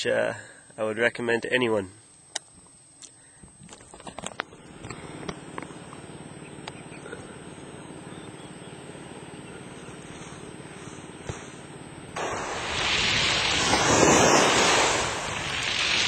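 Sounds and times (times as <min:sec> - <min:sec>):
water lapping against kayak hull: 0:12.2 - 0:16.0.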